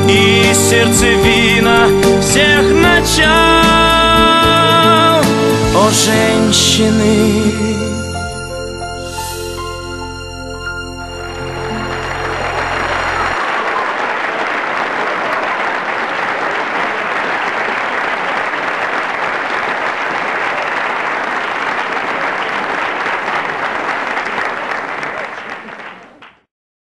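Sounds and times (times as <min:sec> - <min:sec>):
background music: 0:00.0 - 0:13.4
audience applauding: 0:11.0 - 0:26.5.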